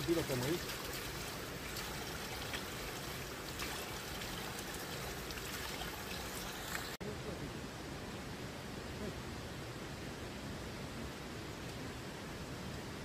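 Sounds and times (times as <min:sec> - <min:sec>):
spring water running: 0:00.0 - 0:07.0.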